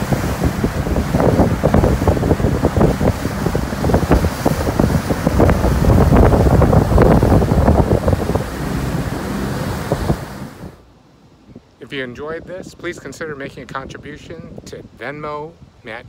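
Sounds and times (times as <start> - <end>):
water rushing: 0.0 - 11.0
wind buffeting microphone: 0.0 - 16.0.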